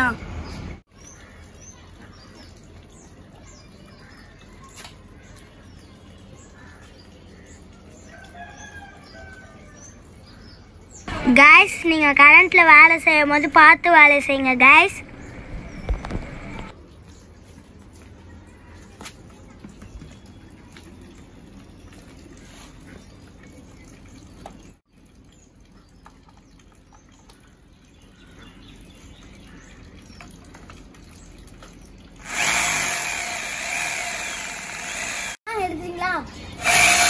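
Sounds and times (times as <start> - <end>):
rotary hammer drill running: 32.2 - 35.4, 36.6 - 37.0.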